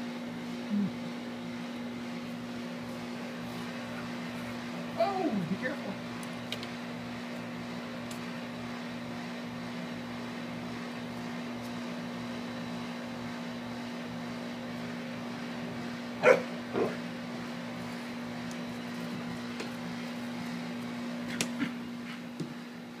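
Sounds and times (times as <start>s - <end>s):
steady low hum: 0.0s - 23.0s
dog barking: 16.2s - 17.0s
dog yipping: 16.2s - 17.0s.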